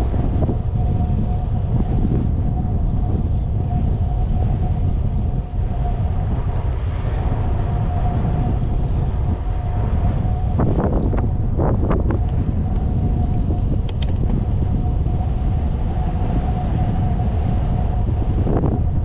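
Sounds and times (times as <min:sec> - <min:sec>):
thin steady whine: 0:00.0 - 0:19.0
wind buffeting microphone: 0:00.0 - 0:19.0.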